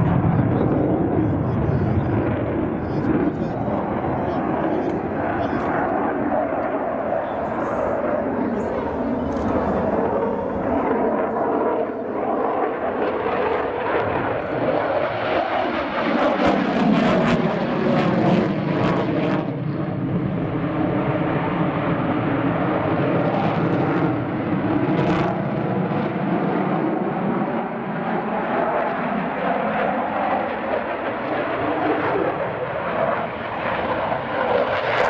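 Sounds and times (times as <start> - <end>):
jet engine crackles: 0.0 - 14.6
jet engine roar: 0.0 - 35.0.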